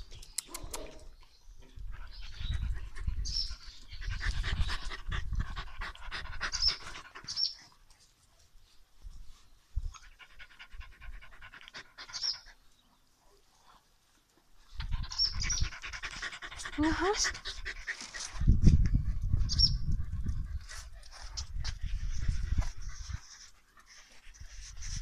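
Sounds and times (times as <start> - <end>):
dog panting: 4.0 - 7.8, 14.8 - 25.0.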